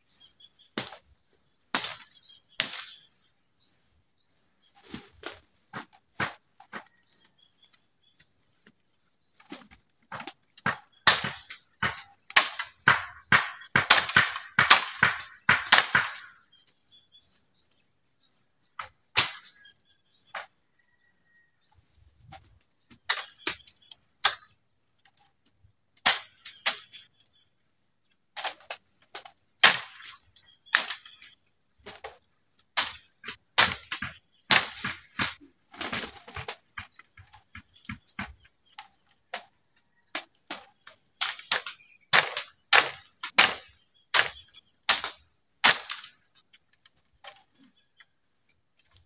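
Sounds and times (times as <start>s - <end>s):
machete chopping bamboo: 10.1s - 16.4s, 19.2s - 19.6s, 26.0s - 27.0s, 29.6s - 31.3s, 32.8s - 37.2s, 40.2s - 46.2s.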